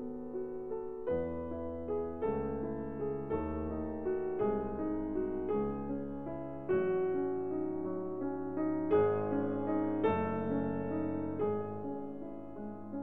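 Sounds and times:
calm piano chords: 0:00.0 - 0:13.0.

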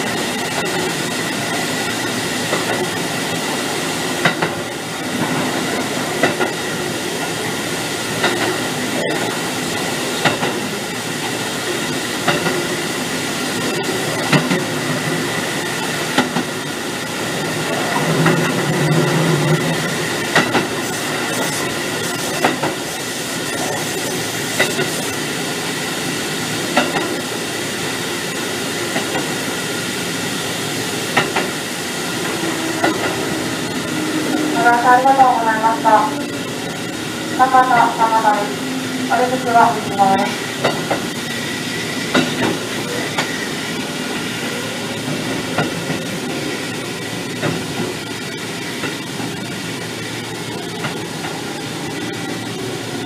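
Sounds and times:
train rumble: 0:00.0 - 0:53.0
thin high whine: 0:31.8 - 0:40.2.

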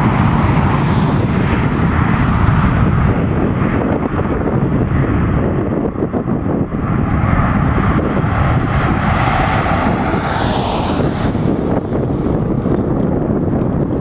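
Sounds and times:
jet engine rumble: 0:00.0 - 0:14.0
jet engine hiss: 0:06.9 - 0:11.8.

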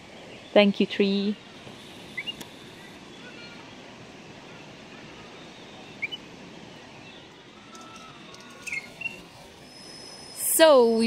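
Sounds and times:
outdoor background hiss: 0:00.0 - 0:11.0.

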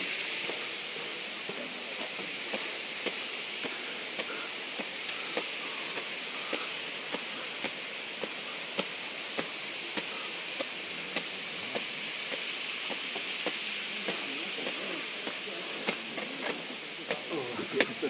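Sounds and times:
faint voices: 0:00.0 - 0:18.0
water flowing over rock: 0:00.0 - 0:18.0.

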